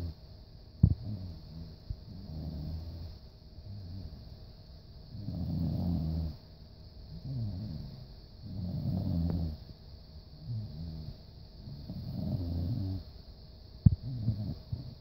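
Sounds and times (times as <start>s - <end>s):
dog snoring: 0.8s - 4.2s, 5.1s - 6.4s, 7.1s - 9.6s, 10.4s - 13.1s, 14.0s - 15.0s.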